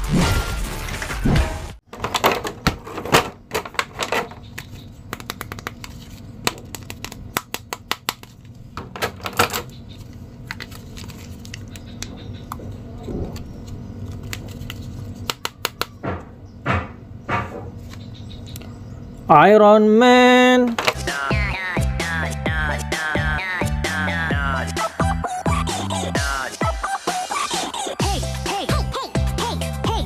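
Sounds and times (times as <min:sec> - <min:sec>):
plastic packaging crinkling: 0:10.0 - 0:11.9.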